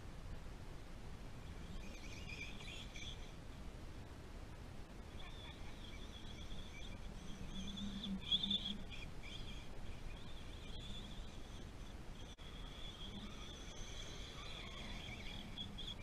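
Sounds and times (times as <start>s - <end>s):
low wind rumble: 0.0s - 16.0s
rc truck motor whine: 5.1s - 16.0s.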